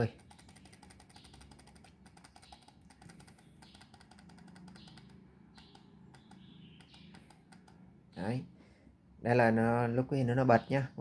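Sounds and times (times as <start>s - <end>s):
plastic timer button clicking: 0.0s - 7.8s.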